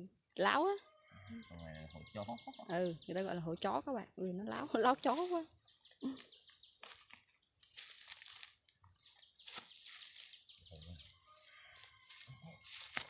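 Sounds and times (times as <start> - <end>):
leaves and plastic sack rustling: 6.8 - 13.0.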